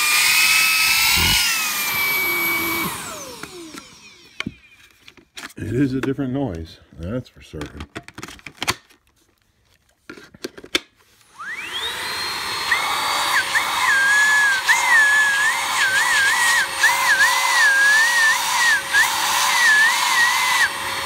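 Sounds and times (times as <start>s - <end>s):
stick vacuum motor whining: 0.0s - 5.5s, 11.2s - 21.0s.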